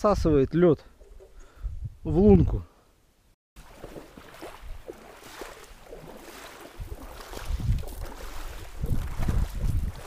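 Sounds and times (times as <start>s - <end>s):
wind rumble on microphone: 1.0s - 2.6s, 6.6s - 10.0s
boots splashing through water: 3.6s - 10.0s.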